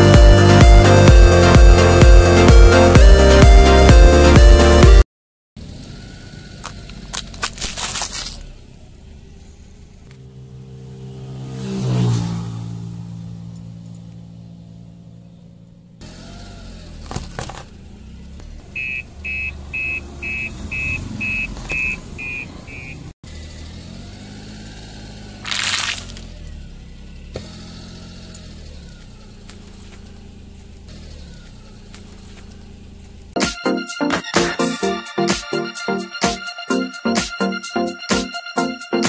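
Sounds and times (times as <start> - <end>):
car engine running: 0.0 - 5.0, 5.6 - 33.4
music: 0.0 - 5.0, 33.4 - 39.0
plastic cups crunching: 6.6 - 8.4, 25.4 - 26.3
electronic beeps: 18.7 - 23.1.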